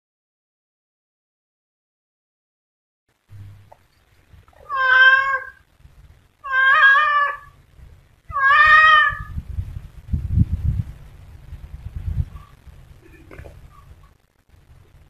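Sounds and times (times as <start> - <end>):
low rumbling noise: 3.1 - 15.0
cat meowing: 4.6 - 5.6, 6.4 - 7.6, 8.3 - 9.4.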